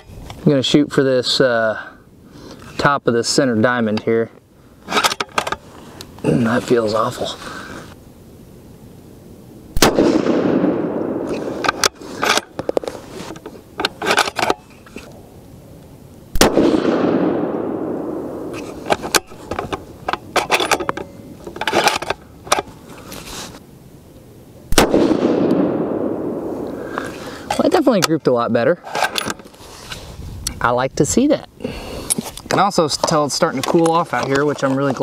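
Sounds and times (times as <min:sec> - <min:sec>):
rifle shots: 0:09.8 - 0:11.9, 0:16.3 - 0:18.6, 0:24.7 - 0:26.6.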